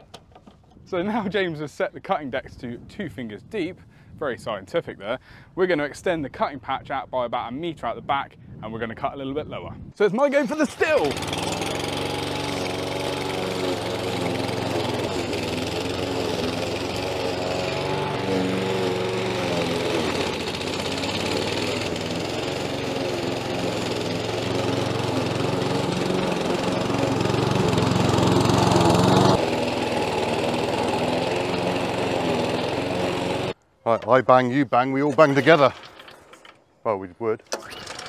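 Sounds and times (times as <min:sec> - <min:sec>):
lawn mower cutting grass: 0:10.4 - 0:33.6, 0:35.2 - 0:36.4, 0:37.5 - 0:38.0.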